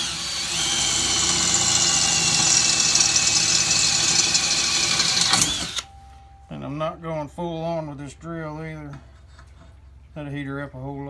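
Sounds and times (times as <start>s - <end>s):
cordless drill motor whine: 0.0s - 5.9s
drill bit grinding into metal: 0.0s - 5.9s.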